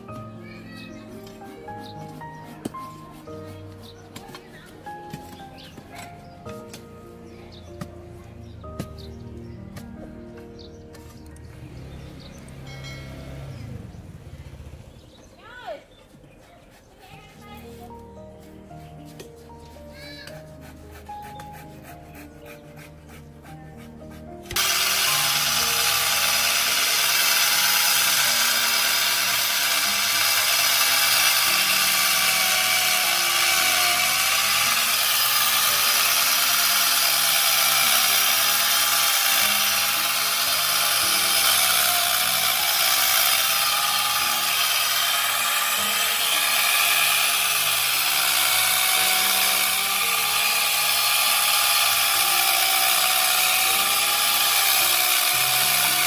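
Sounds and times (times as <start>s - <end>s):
power tool cutting wood: 0.0s - 6.9s, 20.0s - 22.7s, 24.3s - 56.0s.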